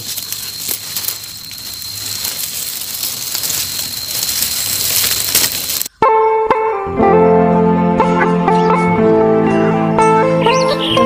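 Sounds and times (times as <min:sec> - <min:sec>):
dry grass and leaves rustling: 0:00.0 - 0:06.0.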